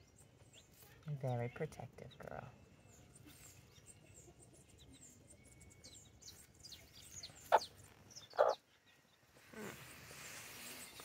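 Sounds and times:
chicks peeping: 2.9 - 9.4
hen clucking: 7.4 - 8.6.

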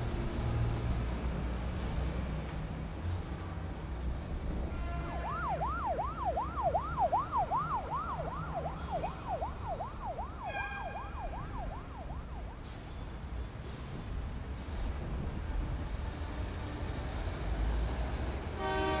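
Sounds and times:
low city rumble: 0.0 - 19.0
emergency siren yelping: 5.0 - 12.6.

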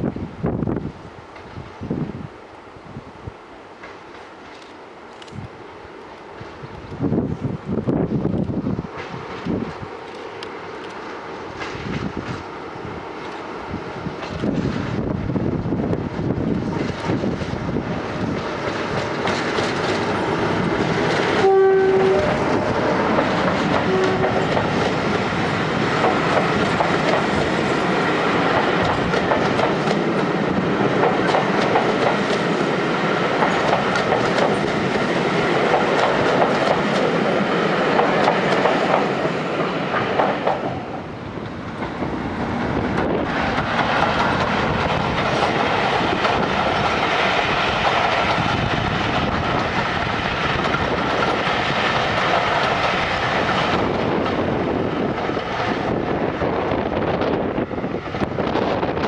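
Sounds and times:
wind buffeting microphone: 0.0 - 3.4, 6.4 - 10.1, 11.5 - 59.0
diesel locomotive engine: 0.0 - 59.0
coaches rumbling on rails: 6.3 - 59.0
train horn blast: 21.4 - 24.4.

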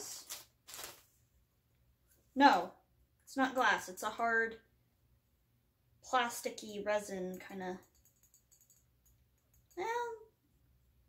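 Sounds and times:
woman speaking: 2.4 - 4.6, 6.0 - 7.8, 9.8 - 10.3.

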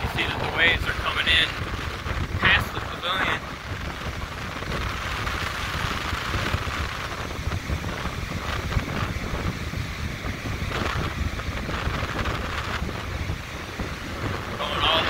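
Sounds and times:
surf breaking on shore: 0.0 - 15.0
wind buffeting microphone: 0.0 - 15.0.

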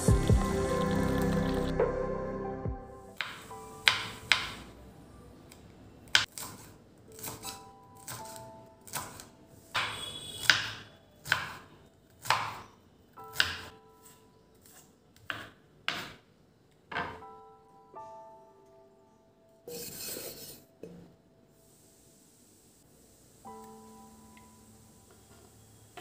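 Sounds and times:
knife chopping on wooden board: 9.8 - 11.6, 12.2 - 12.6.

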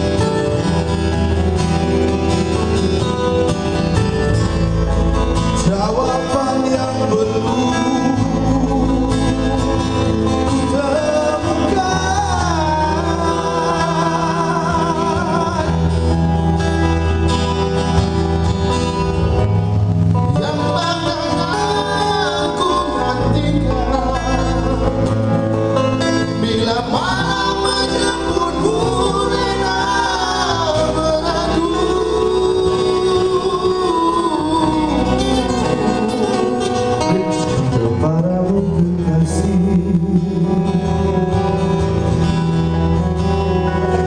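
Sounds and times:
acoustic guitar: 0.0 - 44.0
bass guitar: 0.0 - 44.0
men singing: 5.6 - 16.9, 20.3 - 41.2.

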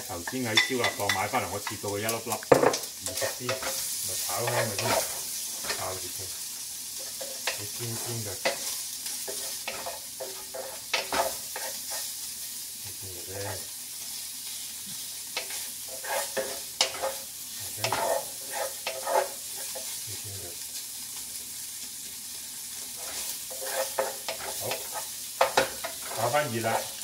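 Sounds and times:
meat sizzling in a pan: 0.0 - 27.0
wooden spatula scraping a pan: 2.7 - 6.1, 7.0 - 12.2, 13.3 - 20.0, 22.8 - 27.0.

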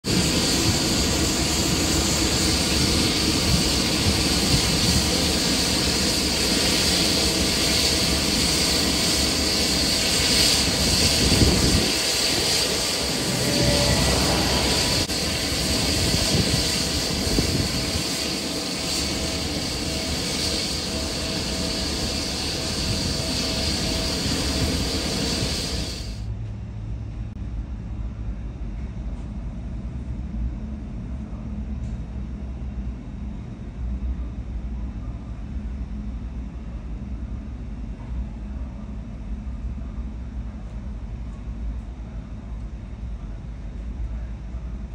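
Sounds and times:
jet engines running: 0.0 - 27.3
airliner taxiing hum: 0.0 - 44.9.

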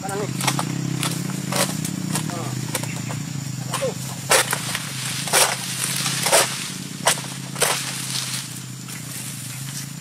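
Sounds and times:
sickle cutting strokes: 0.1 - 10.0.

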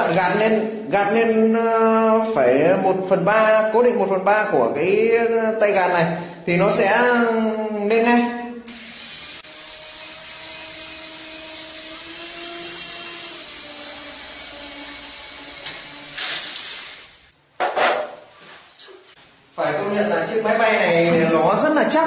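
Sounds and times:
toy helicopter motor whirring: 8.7 - 17.3.

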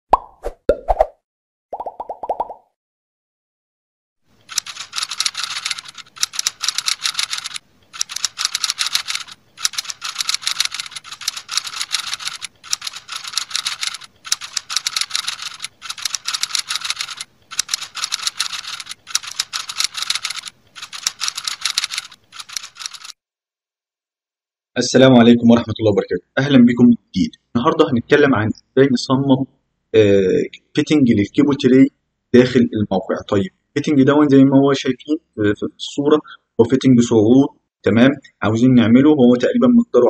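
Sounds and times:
keyboard typing clicks: 4.4 - 23.2.

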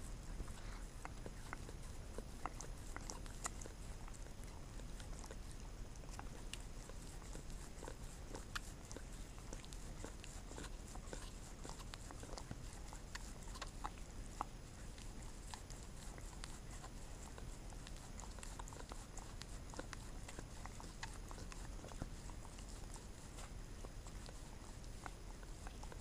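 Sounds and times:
dog licking fingers: 0.2 - 26.0.

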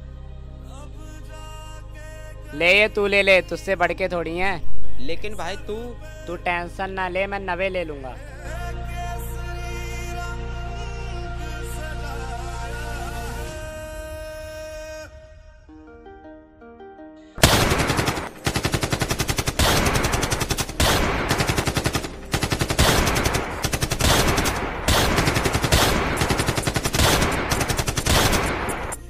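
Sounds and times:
soft music notes: 0.0 - 17.4
rapid machine-gun fire: 17.4 - 29.0.

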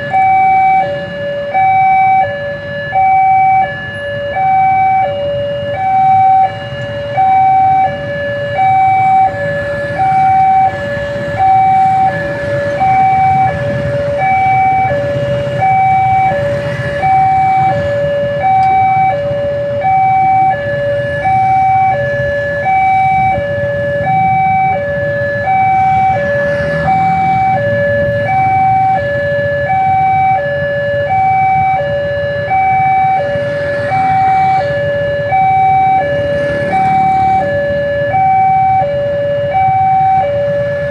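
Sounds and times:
two-tone level crossing alarm: 0.0 - 40.9
motorbikes idling: 5.9 - 30.4.

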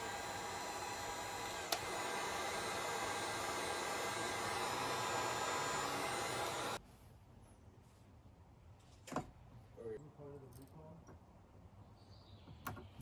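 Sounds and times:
small motor whirring: 0.0 - 6.8.

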